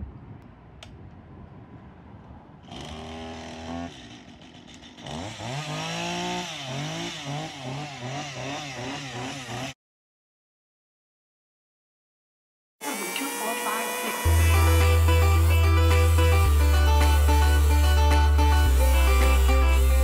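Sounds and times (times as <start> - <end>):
chainsaw revving: 2.6 - 9.8, 12.8 - 20.0.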